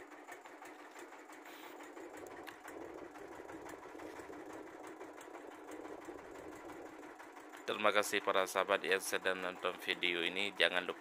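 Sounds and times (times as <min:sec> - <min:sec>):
small engine running: 0:00.0 - 0:11.0.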